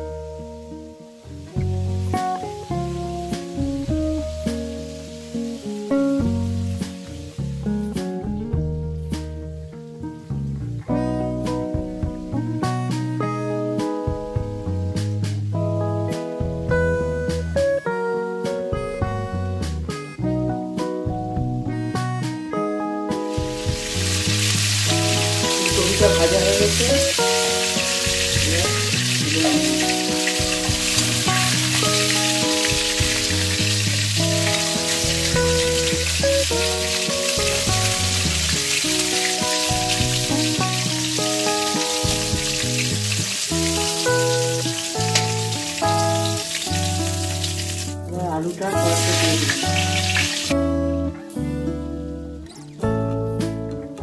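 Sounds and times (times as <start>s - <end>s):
instrumental music: 0.0s - 54.0s
vegetables sizzling in hot oil: 0.1s - 8.2s, 23.2s - 50.6s.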